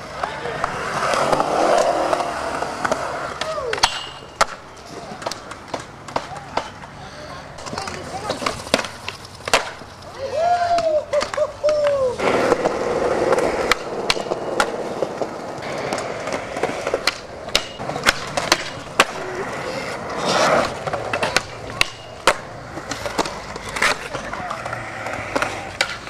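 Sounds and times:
skateboard wheels rolling on concrete: 0:00.0 - 0:26.0
skateboard clacks popping and landing: 0:00.1 - 0:06.9, 0:07.6 - 0:10.0, 0:10.7 - 0:26.0
skateboard scraping on metal handrail: 0:12.1 - 0:26.0.

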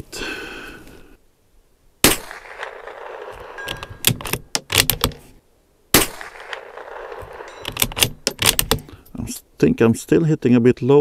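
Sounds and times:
rifle shots with short echo: 0:02.0 - 0:05.2, 0:05.9 - 0:08.9
rifle bolt metallic clicks: 0:02.6 - 0:05.2, 0:06.2 - 0:09.1.

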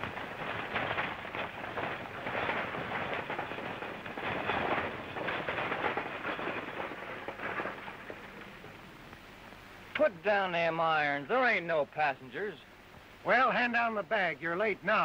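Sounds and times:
wheels and harness rattling: 0:00.0 - 0:09.2
hooves clattering: 0:00.0 - 0:12.6.

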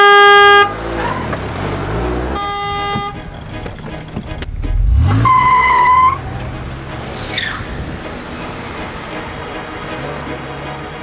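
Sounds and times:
car horn blaring: 0:00.0 - 0:00.8, 0:02.2 - 0:03.4, 0:04.5 - 0:07.5
car engine rumbling: 0:00.7 - 0:10.3.

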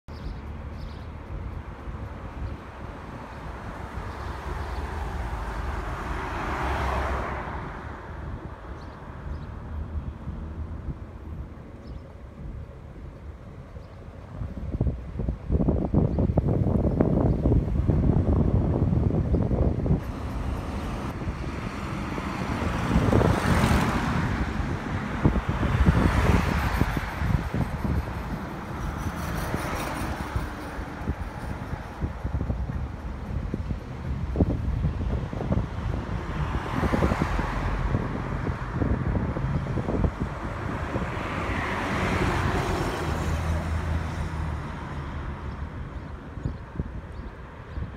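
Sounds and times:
wind buffeting microphone: 0:00.1 - 0:47.9
vehicle passing: 0:19.9 - 0:46.1.

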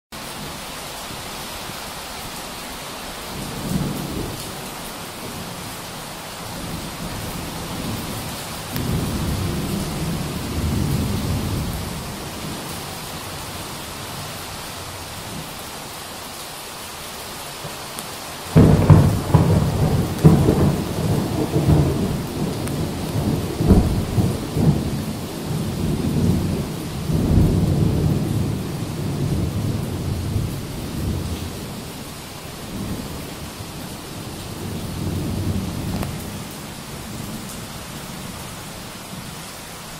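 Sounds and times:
steady rain hiss: 0:00.2 - 0:39.9
loud thunderclap: 0:06.5 - 0:12.7, 0:18.5 - 0:31.8
thunder rolling: 0:06.5 - 0:13.6, 0:18.5 - 0:31.9.

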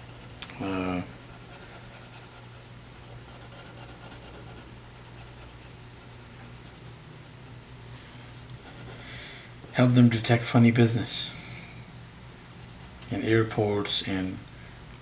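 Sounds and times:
pencil scratching on paper: 0:00.0 - 0:00.4, 0:01.0 - 0:07.4, 0:08.6 - 0:09.0, 0:12.6 - 0:13.2.

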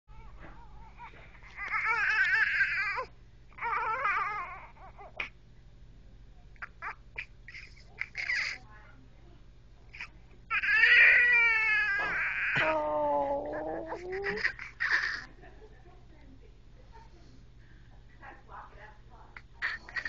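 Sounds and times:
baby crying: 0:00.1 - 0:05.3, 0:10.0 - 0:15.3.

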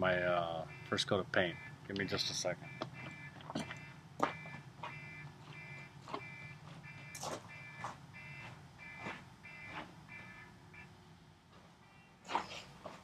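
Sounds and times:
alarm beeping: 0:00.6 - 0:10.9.

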